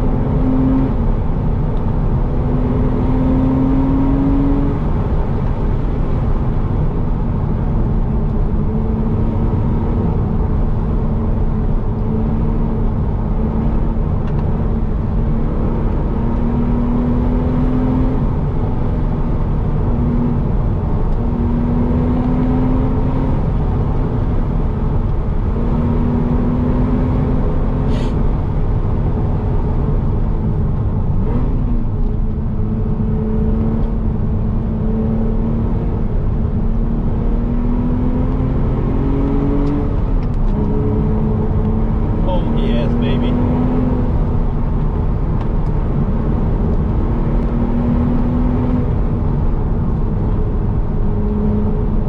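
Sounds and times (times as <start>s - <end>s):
car engine and road noise: 0.0s - 52.0s.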